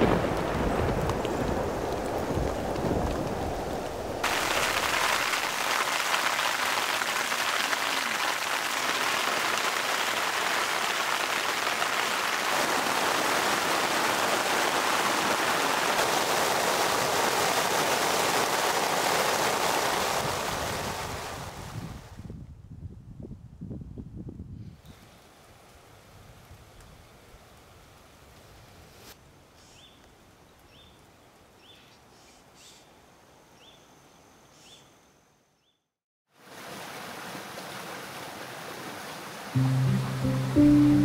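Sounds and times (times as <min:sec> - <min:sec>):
faint wind: 0:00.0 - 0:05.7, 0:12.1 - 0:35.4
steady rain: 0:00.0 - 0:22.2, 0:25.0 - 0:29.0, 0:36.3 - 0:41.0.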